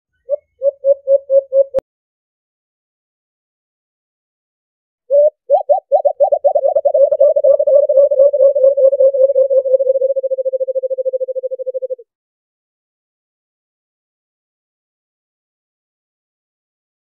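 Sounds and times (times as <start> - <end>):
dove cooing: 0.2 - 1.8, 5.1 - 12.0.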